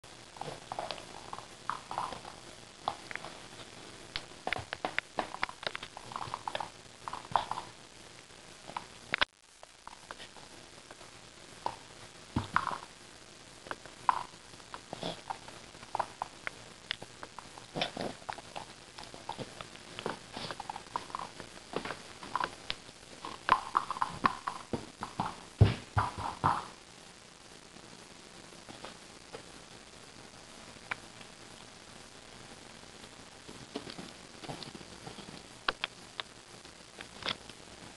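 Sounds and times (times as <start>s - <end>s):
thumps: 23.5s - 26.8s.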